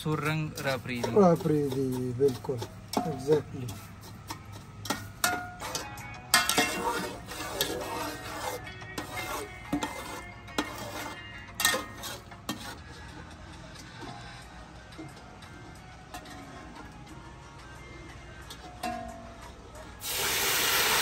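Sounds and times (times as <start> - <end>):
metal spoon scraping a pot: 0.0 - 17.7.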